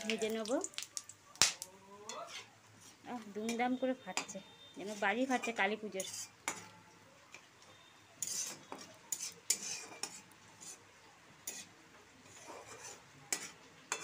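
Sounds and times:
oil sizzling: 0:00.0 - 0:03.9, 0:07.4 - 0:14.0
spices crackling and popping: 0:00.0 - 0:14.0
metal spatula scraping pan: 0:02.1 - 0:06.8, 0:08.2 - 0:10.8, 0:11.4 - 0:14.0.

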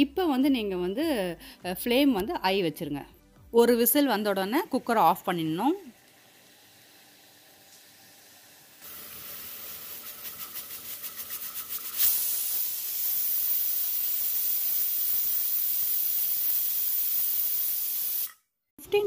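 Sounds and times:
pressure cooker steam hissing: 0:08.2 - 0:18.4.

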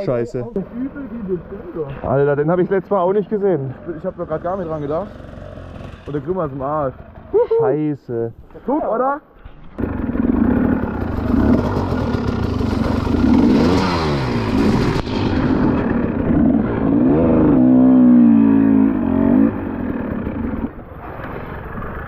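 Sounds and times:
dirt bike engine revving: 0:03.9 - 0:07.3, 0:09.8 - 0:22.0.

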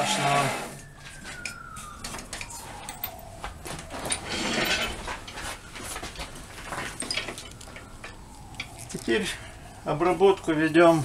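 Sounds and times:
clicks and knocks of tools: 0:01.3 - 0:05.5.

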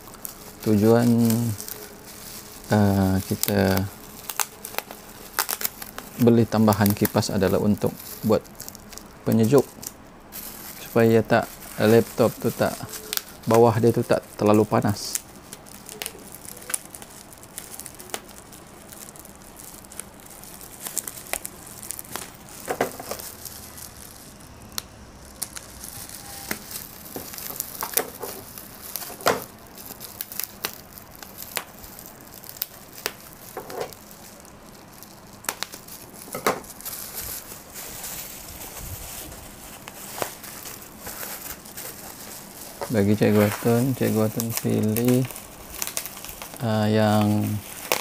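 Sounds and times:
bubble wrap crinkling: 0:00.0 - 0:48.0
packing tape peeling: 0:00.0 - 0:48.0.

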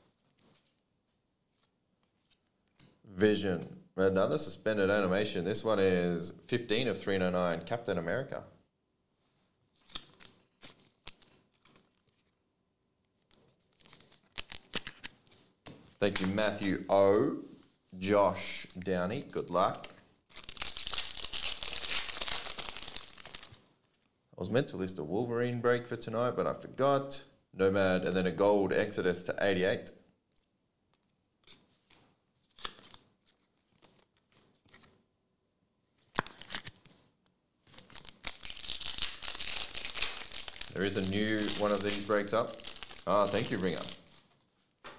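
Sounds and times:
trading cards rustling: 0:09.8 - 0:12.4, 0:13.2 - 0:16.7, 0:17.8 - 0:24.0, 0:31.4 - 0:35.0, 0:36.0 - 0:37.0, 0:37.7 - 0:44.9
foil wrapper crinkling: 0:20.3 - 0:23.6, 0:37.7 - 0:44.5.

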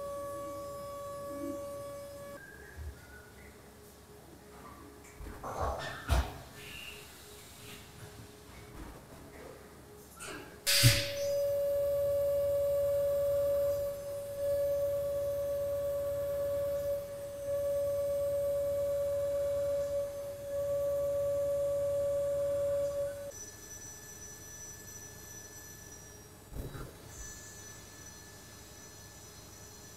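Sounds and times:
milling spindle whine: 0:00.0 - 0:02.4, 0:10.7 - 0:29.9.

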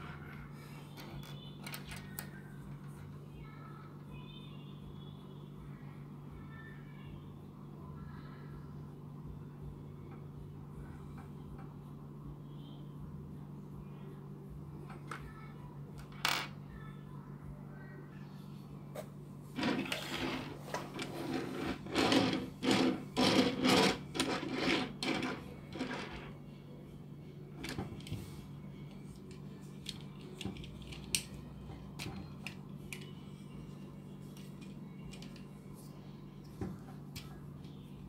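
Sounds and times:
plastic toy scraping on wood: 0:19.6 - 0:26.3.

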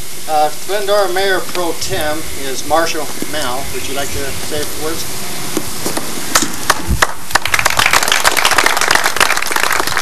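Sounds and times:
audience applauding: 0:06.6 - 0:10.0.

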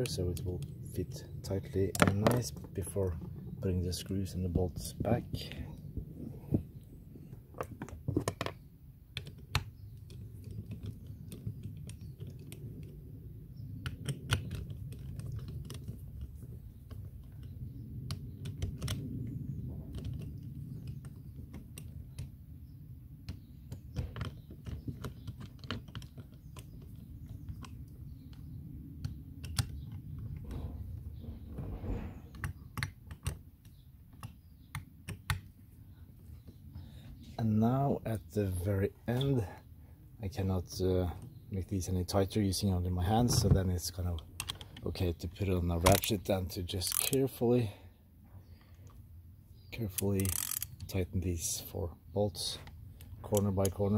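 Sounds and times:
steady low rumble: 0:00.0 - 0:08.1, 0:27.0 - 0:32.4
metal and plastic parts clicking: 0:13.8 - 0:19.3, 0:23.3 - 0:31.4, 0:44.2 - 0:44.8, 0:45.8 - 0:46.2, 0:46.8 - 0:47.2, 0:49.9 - 0:50.9.

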